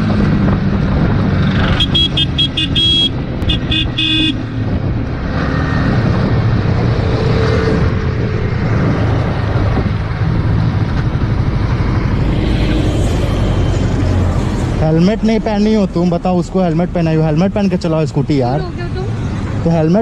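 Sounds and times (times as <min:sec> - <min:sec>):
wind noise: 0:00.0 - 0:15.5
motorcycle engine hum: 0:00.0 - 0:16.7
horn short beeps: 0:01.7 - 0:04.4.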